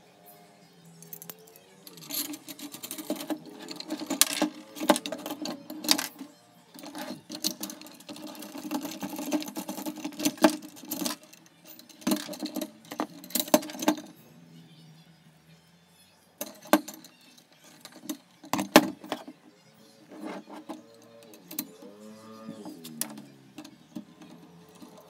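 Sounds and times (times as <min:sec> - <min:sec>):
metal clicks and clinks: 0:01.0 - 0:14.2, 0:16.4 - 0:19.3.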